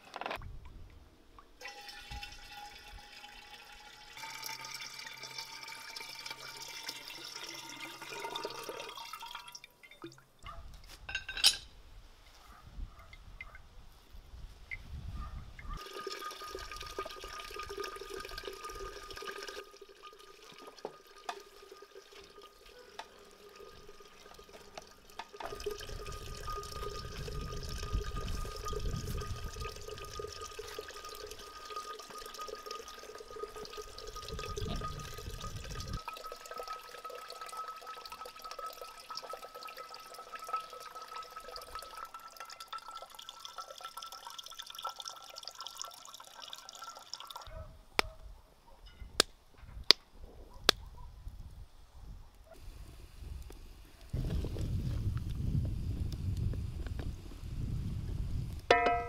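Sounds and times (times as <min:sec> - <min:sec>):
juice trickling into a jug: 0:01.6 - 0:10.5, 0:15.8 - 0:47.5.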